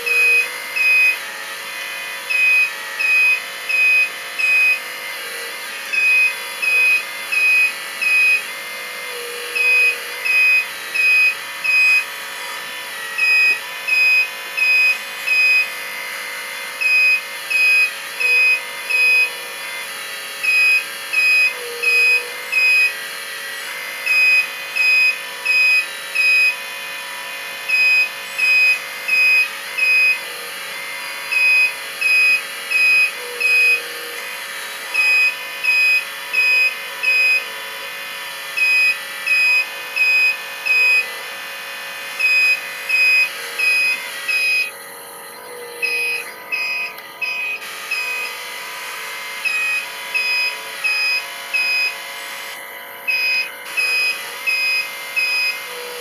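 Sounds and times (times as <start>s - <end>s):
electronic warning beeps: 0.0s - 1.2s, 2.3s - 4.9s, 5.9s - 8.5s, 9.2s - 12.1s, 13.2s - 15.9s, 16.8s - 19.4s, 20.4s - 23.0s, 24.1s - 26.7s, 27.6s - 30.3s, 31.3s - 34.0s, 35.0s - 37.5s, 38.6s - 41.1s, 42.2s - 56.0s
mechanical whine: 0.0s - 56.0s.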